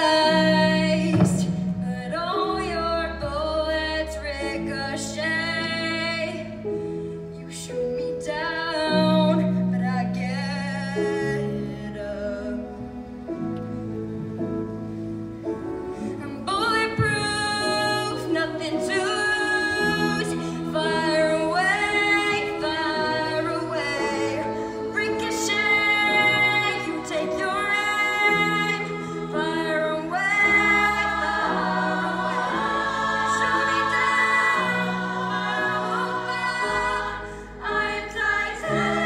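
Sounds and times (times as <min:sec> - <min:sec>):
choir singing in harmony: 0:00.0 - 0:03.3, 0:17.6 - 0:39.0
low instrumental accompaniment: 0:08.7 - 0:39.0.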